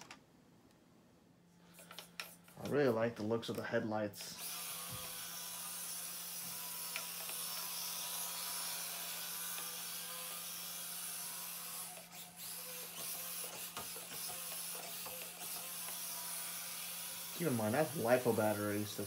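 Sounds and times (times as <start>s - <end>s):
small electric motor whirring: 4.2s - 19.0s.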